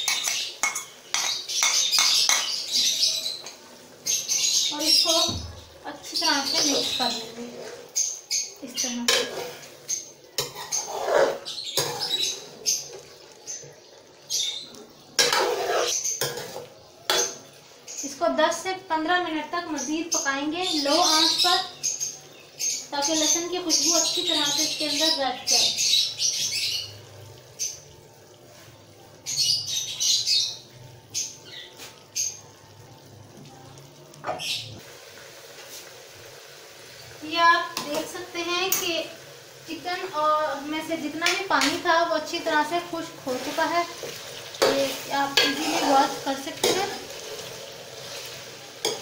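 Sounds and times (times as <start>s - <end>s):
birds chirping: 0.0s - 34.8s, 36.9s - 47.1s
metal spoon scraping metal pan: 9.0s - 12.3s, 15.2s - 17.4s, 43.3s - 49.0s.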